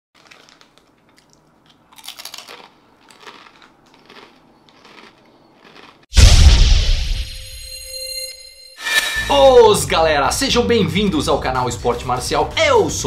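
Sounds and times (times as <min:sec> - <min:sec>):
man chewing crunchy food: 0:00.2 - 0:06.1
deep boom with whoosh: 0:06.2 - 0:07.8.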